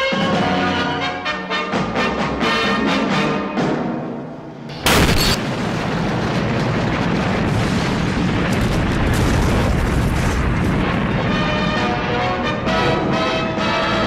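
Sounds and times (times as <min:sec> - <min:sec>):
loud explosion: 0:04.8 - 0:12.7
low rumble of fire: 0:05.4 - 0:13.4.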